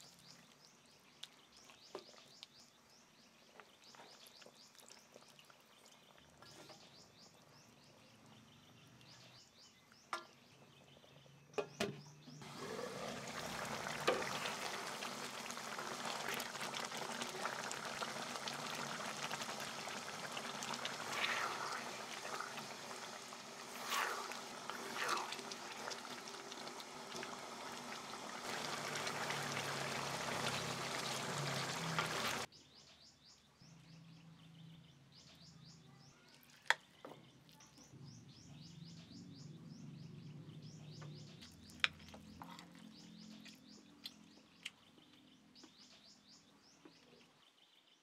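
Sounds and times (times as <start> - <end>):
sauce bubbling and crackling: 0.0 - 9.2, 12.4 - 32.5
wooden spoon stirring in pan: 12.4 - 32.5.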